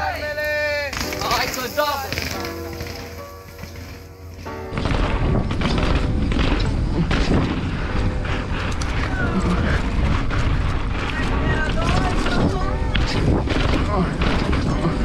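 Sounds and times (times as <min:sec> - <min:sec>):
bike rolling rumble: 0:00.0 - 0:15.0
wind on microphone: 0:04.8 - 0:15.0.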